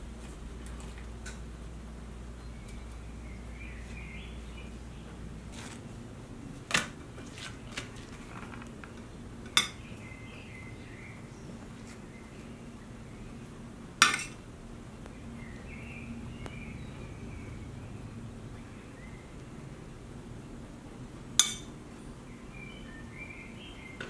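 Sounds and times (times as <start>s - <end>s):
low room hum: 0.0s - 24.0s
tableware clinking on steel bowl: 9.5s - 9.8s, 14.0s - 14.4s, 21.4s - 21.7s.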